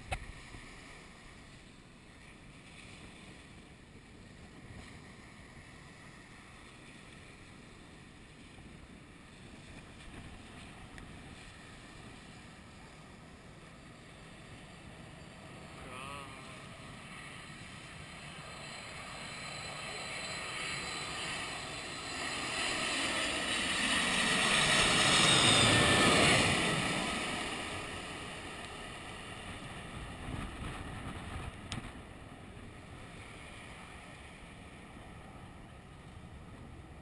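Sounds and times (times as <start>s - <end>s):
jet airliner passing overhead: 0.0s - 37.0s.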